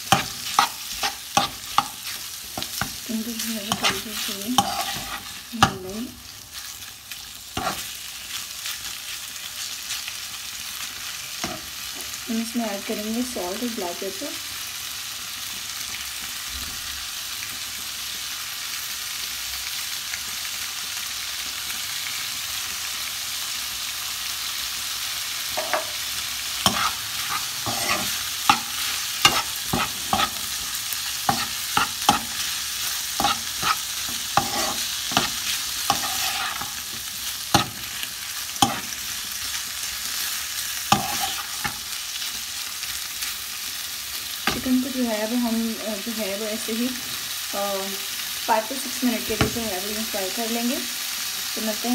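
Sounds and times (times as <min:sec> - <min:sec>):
metal spoon scraping a pan: 0:00.0 - 0:06.0, 0:07.6 - 0:08.0, 0:25.6 - 0:26.0, 0:26.6 - 0:39.0, 0:40.8 - 0:41.8
chicken sizzling in a pan: 0:00.0 - 0:51.9.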